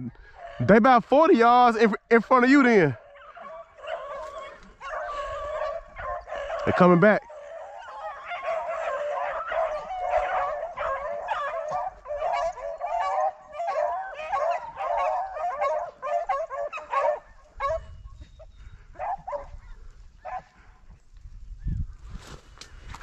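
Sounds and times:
hounds baying: 0.0s - 1.0s, 2.4s - 20.9s
dogs yelping: 0.2s - 0.8s, 2.8s - 20.6s.

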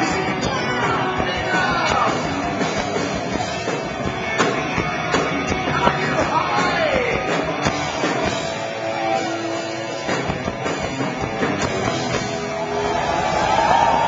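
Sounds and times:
hard rock band playing live: 0.0s - 14.0s.

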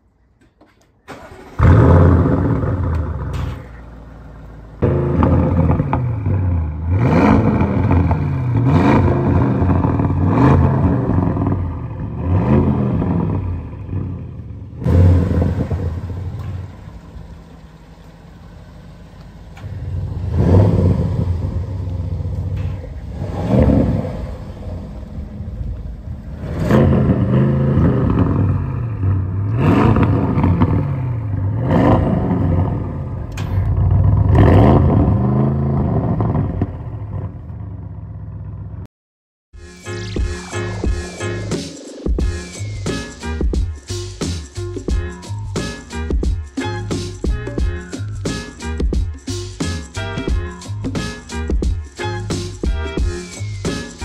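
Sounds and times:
car engine idling: 1.1s - 34.6s
car engine revving: 1.1s - 38.8s, 39.8s - 54.0s.

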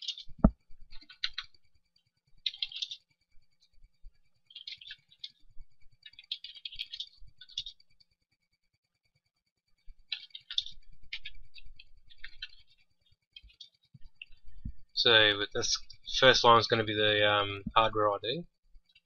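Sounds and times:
computer keyboard typing: 0.0s - 1.6s, 2.4s - 3.0s, 6.0s - 7.8s, 10.1s - 12.8s.

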